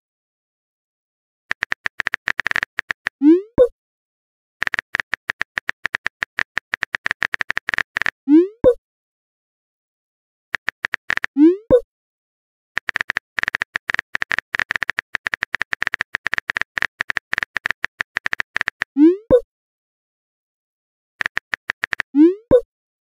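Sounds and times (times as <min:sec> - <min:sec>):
phone keyboard clicking: 0:01.5 - 0:03.2, 0:04.6 - 0:08.2, 0:10.6 - 0:11.3, 0:12.8 - 0:18.9, 0:21.2 - 0:22.1
bubble-pop message sound: 0:11.4 - 0:11.8, 0:19.0 - 0:19.4, 0:22.2 - 0:22.7.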